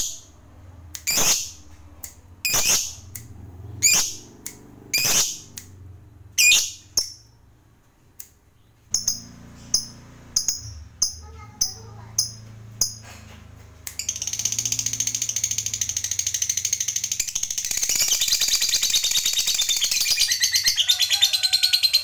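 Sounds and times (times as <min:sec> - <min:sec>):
lovebird shrill calls: 0:01.0 - 0:01.6, 0:02.4 - 0:03.1, 0:03.8 - 0:04.2, 0:04.9 - 0:05.5, 0:06.4 - 0:07.2, 0:14.0 - 0:22.0
sharp bird chirps: 0:01.0 - 0:01.8, 0:02.4 - 0:07.5, 0:08.6 - 0:11.4, 0:13.9 - 0:22.0.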